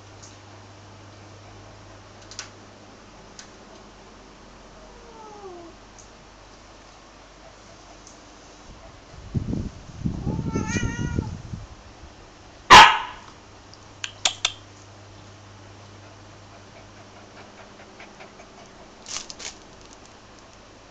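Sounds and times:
cat growling and yowling: 4.8s - 5.8s, 10.2s - 11.3s.

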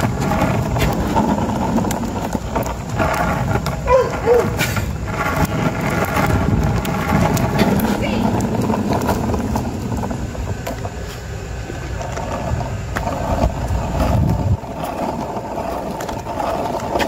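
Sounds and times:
skateboard wheels rolling on asphalt: 0.0s - 17.0s.

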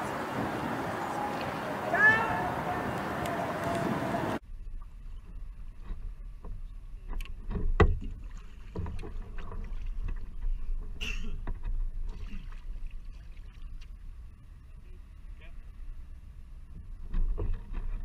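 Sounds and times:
paddle strokes through water: 0.0s - 18.0s
splashes and drips: 7.8s - 10.7s, 12.0s - 14.1s.

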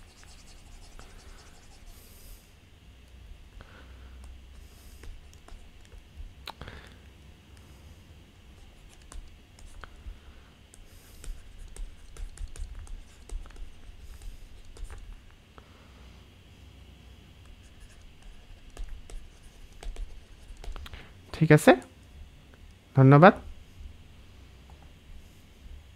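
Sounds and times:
stylus writing on tablet: 0.0s - 2.2s, 4.6s - 5.9s, 10.7s - 15.1s, 17.6s - 20.8s
low steady hum: 0.0s - 25.9s.

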